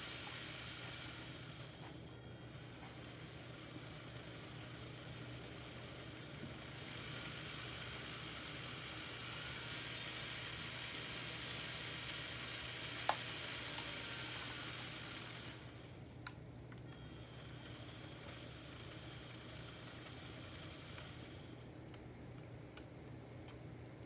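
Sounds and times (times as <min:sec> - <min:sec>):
high jet engine hiss: 0:00.0 - 0:16.1.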